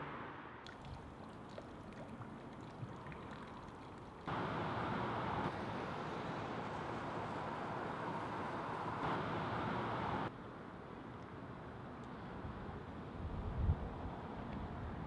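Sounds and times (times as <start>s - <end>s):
faint drips: 0.6s - 4.6s.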